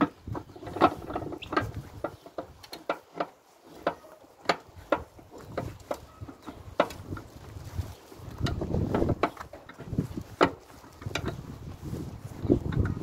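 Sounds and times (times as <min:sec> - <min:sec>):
screw press metal clicks and creaks: 0:00.0 - 0:07.4.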